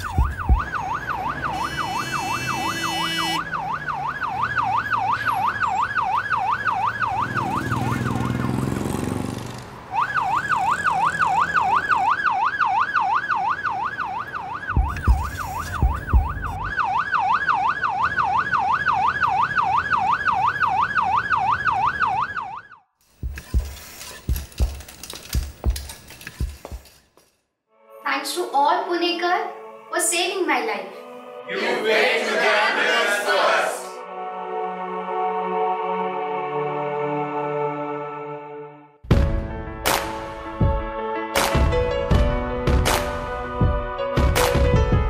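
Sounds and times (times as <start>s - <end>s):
low thumps: 0.0s - 1.0s, 14.7s - 16.7s, 23.2s - 26.8s
ambulance siren wailing: 0.0s - 9.0s, 9.8s - 22.9s.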